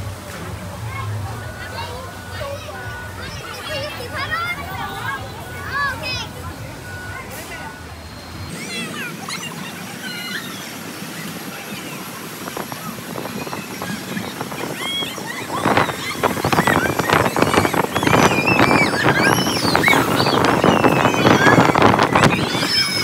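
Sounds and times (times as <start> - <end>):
wind buffeting microphone: 11.4 - 23.0
high-pitched shrieks: 13.1 - 23.0.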